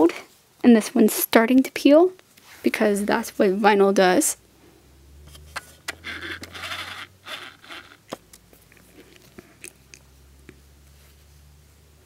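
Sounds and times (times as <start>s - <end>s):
vinyl rustling and rubbing: 5.3s - 9.4s.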